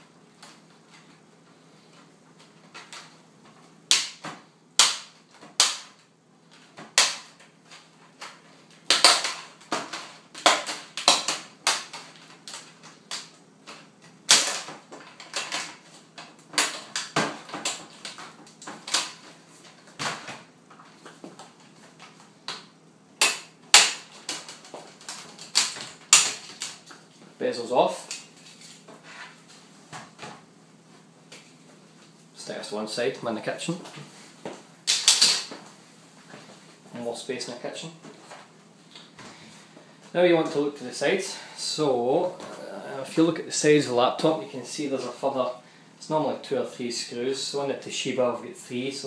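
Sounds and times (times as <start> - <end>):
plastic clips snapping loose: 34.9 - 35.5.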